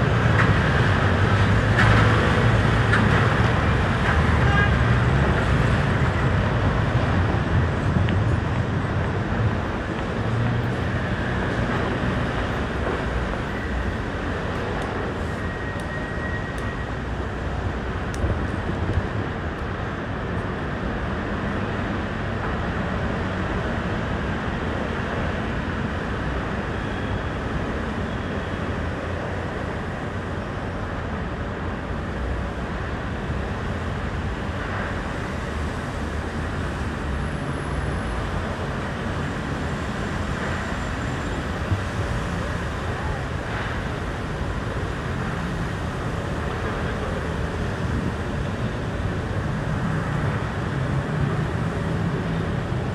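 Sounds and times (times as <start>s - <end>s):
steady vehicle noise: 0.0s - 52.9s.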